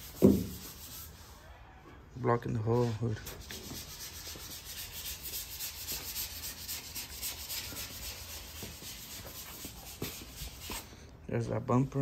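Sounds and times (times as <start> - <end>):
sandpaper rasping on metal panel: 0.0 - 1.2, 2.7 - 10.8.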